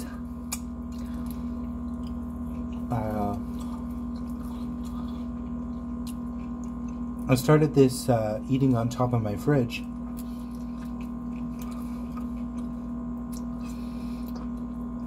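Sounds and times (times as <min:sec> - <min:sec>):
electrical hum: 0:00.0 - 0:15.0.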